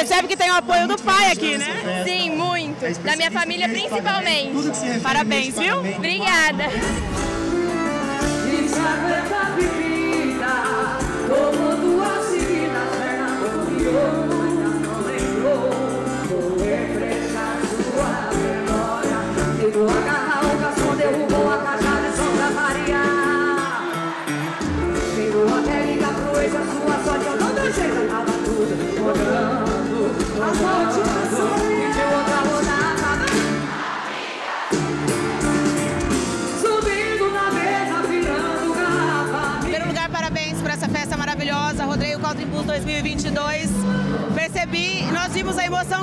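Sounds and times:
backing band: 6.4 - 46.0
person singing: 7.6 - 24.2, 24.8 - 33.6, 36.4 - 40.0.

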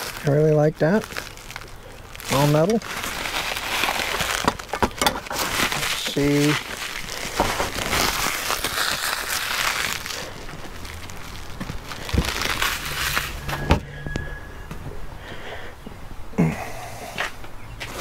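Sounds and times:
plastic packaging crinkling: 0.0 - 13.7.

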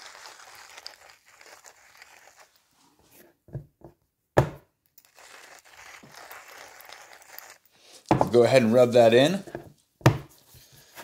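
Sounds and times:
hand grinder crunching salt: 0.0 - 2.6, 5.0 - 8.0
dull thumps: 8.1 - 8.4, 9.5 - 10.3.

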